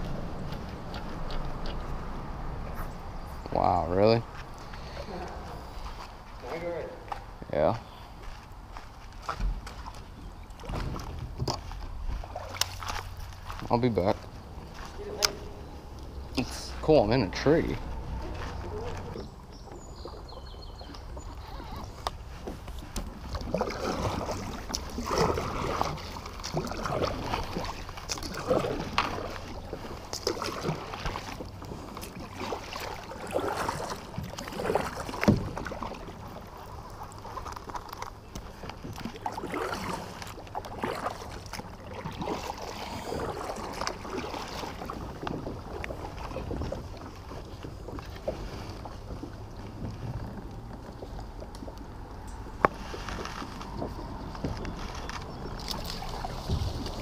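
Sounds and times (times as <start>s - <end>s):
paddle splashing in water: 9.2s - 57.0s
low rumble: 14.2s - 21.1s.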